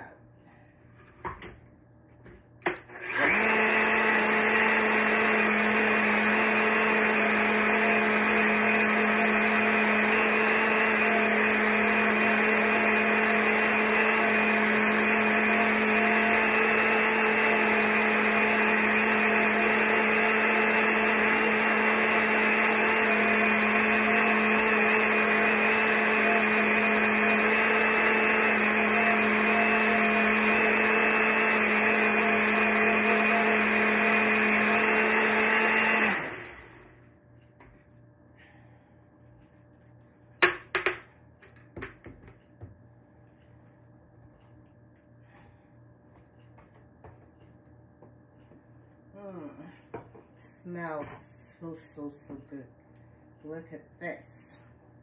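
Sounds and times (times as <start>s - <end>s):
blender motor running: 2.7s - 37.0s
blender starting click: 35.8s - 36.7s.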